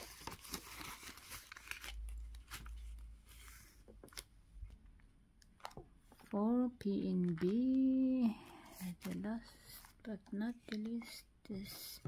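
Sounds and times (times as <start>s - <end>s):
plastic pouches crinkling: 0.0s - 3.0s, 5.4s - 12.0s.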